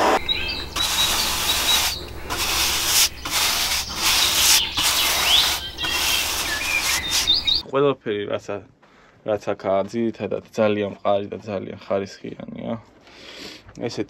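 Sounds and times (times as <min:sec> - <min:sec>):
birds chirping faintly: 0:00.0 - 0:07.6
paintbrush rasping on wood: 0:00.2 - 0:07.6.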